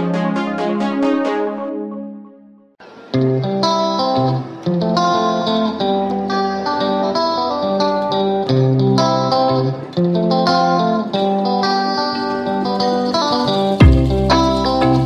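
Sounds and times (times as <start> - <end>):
plucked guitar music: 0.0 - 15.0
held low bass notes: 13.8 - 15.0.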